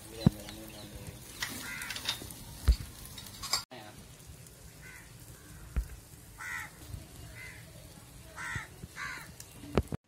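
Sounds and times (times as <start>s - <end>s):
bird calling: 0.3s - 2.4s, 4.8s - 7.7s.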